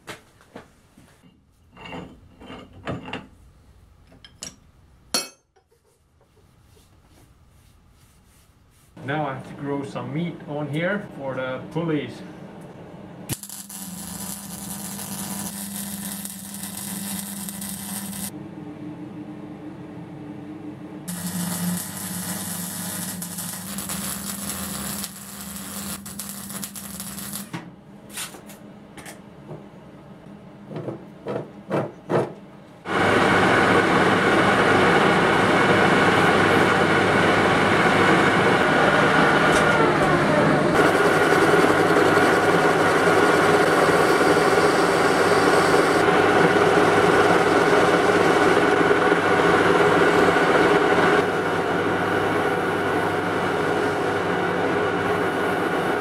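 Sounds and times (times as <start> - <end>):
welding arc crackling: 13.3 - 18.3, 21.1 - 27.6, 40.8 - 49.4
metal lathe running: 21.1 - 27.1, 32.9 - 56.0.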